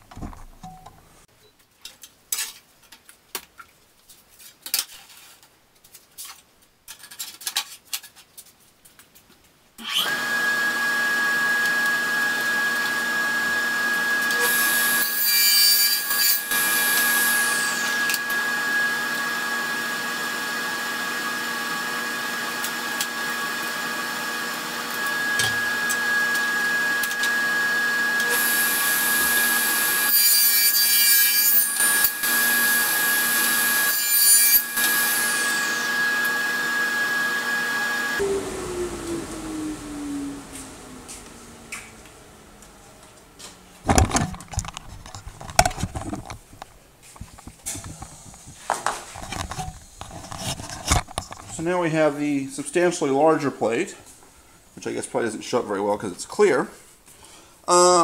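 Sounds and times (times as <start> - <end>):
electric power saw cutting plastic: 9.8 - 42.6.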